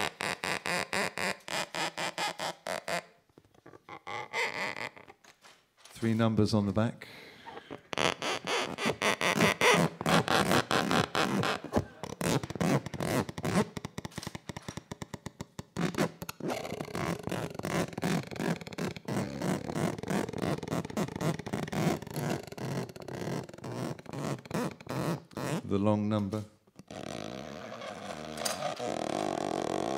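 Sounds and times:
card rasping against bow: 8.0s - 25.6s.

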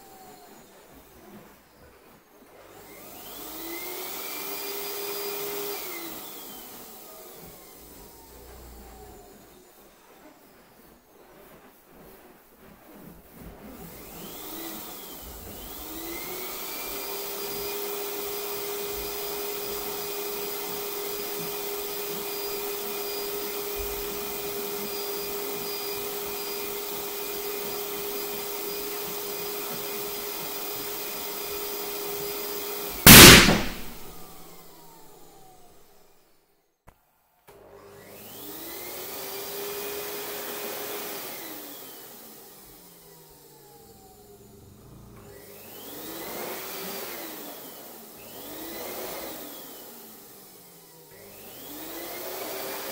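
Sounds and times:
electric balloon pump running: 0.0s - 36.0s
balloon bursting with loud pop: 33.0s - 34.4s.

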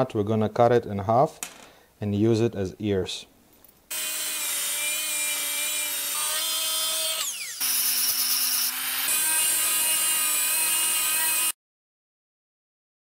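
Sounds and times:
angle grinder cutting steel: 3.9s - 11.6s.

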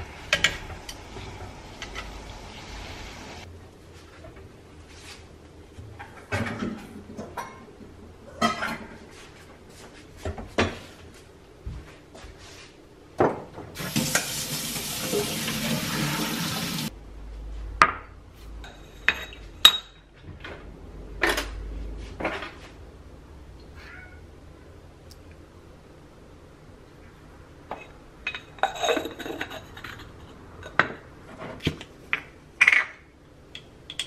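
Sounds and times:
tap water running: 0.0s - 3.5s, 13.8s - 16.9s
metal pot and utensils clinking: 27.8s - 30.8s.

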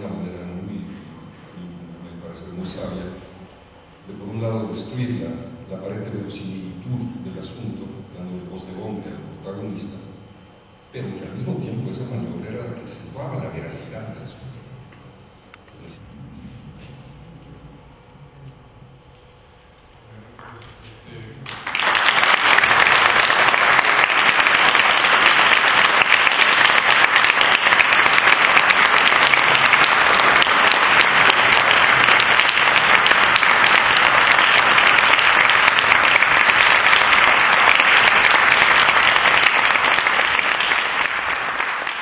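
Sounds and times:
audience applauding: 21.4s - 42.0s.

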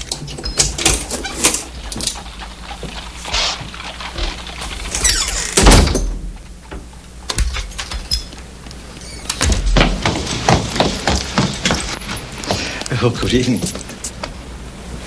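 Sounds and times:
door creaking: 0.0s - 2.3s, 3.0s - 12.1s
door shutting thud: 5.0s - 6.4s, 9.1s - 11.0s.

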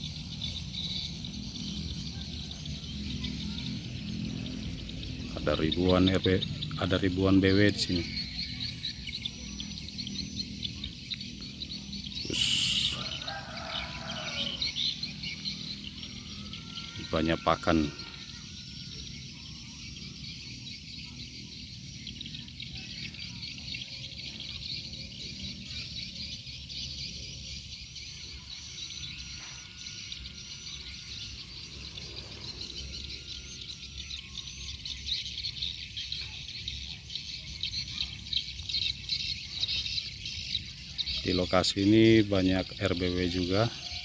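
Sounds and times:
swiftlets twittering: 0.0s - 20.4s.

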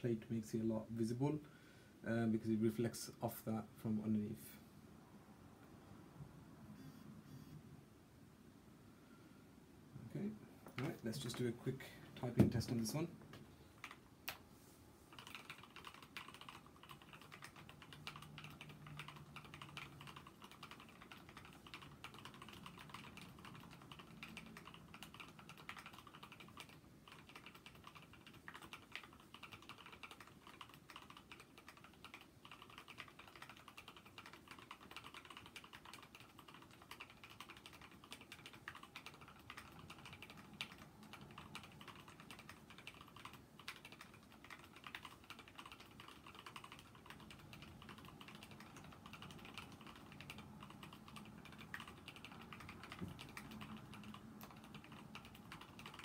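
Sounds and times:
mechanical keyboard typing: 13.8s - 14.0s, 15.1s - 56.0s.

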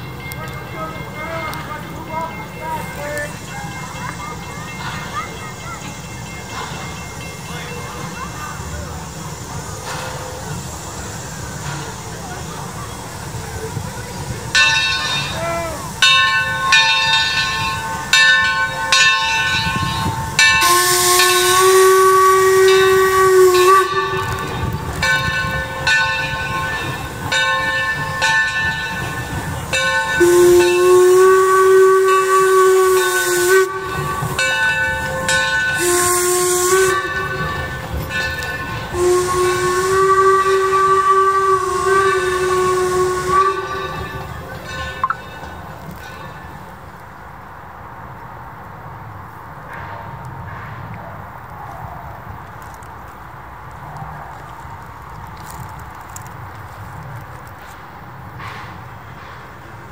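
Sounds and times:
hissing steam: 0.0s - 46.8s
locomotive exhaust beat: 0.0s - 47.2s
steam locomotive whistle blasts: 14.6s - 45.2s.

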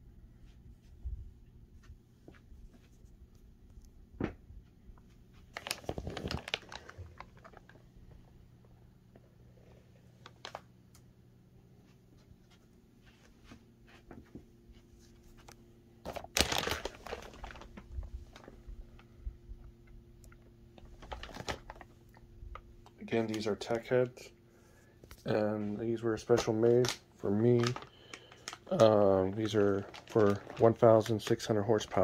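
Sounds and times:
plastic bags crinkling: 5.4s - 8.3s, 10.2s - 10.7s, 16.0s - 19.1s, 20.8s - 23.9s, 25.9s - 32.0s.

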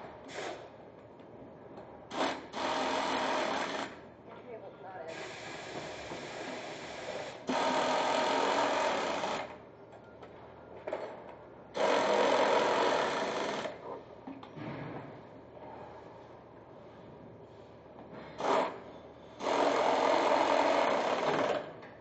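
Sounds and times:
factory background noise: 0.0s - 22.0s
pneumatic tool bursts: 0.2s - 0.7s, 2.1s - 4.0s, 5.1s - 9.6s, 11.8s - 13.8s, 18.3s - 21.7s.

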